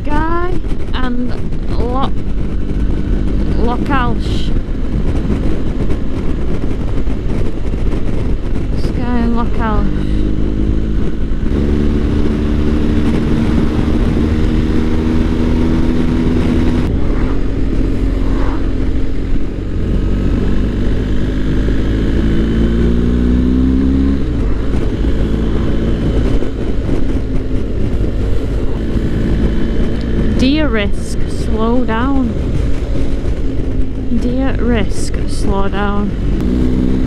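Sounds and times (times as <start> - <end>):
motorcycle engine running: 0.0 - 37.0
wind rush: 0.0 - 37.0.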